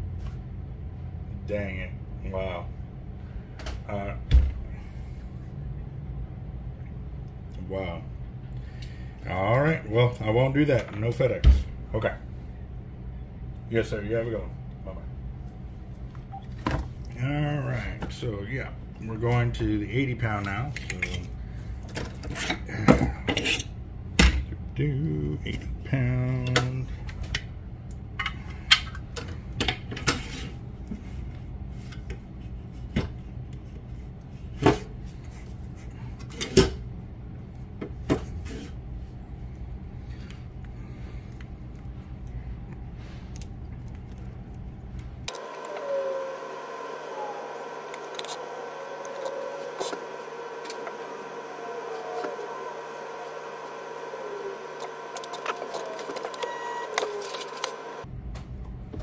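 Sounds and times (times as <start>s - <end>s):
line spooling machine hum: 45.2s - 58.1s.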